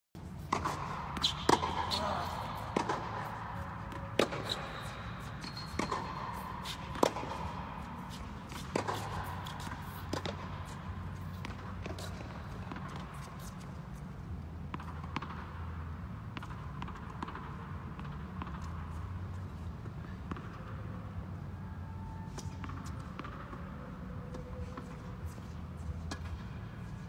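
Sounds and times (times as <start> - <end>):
tennis balls struck by racket: 0.2 - 13.9, 14.7 - 15.7, 16.3 - 18.9, 20.2 - 20.7, 22.3 - 23.6
tennis balls bouncing on court: 0.2 - 21.0, 22.3 - 23.7
steady low hum: 0.2 - 27.0.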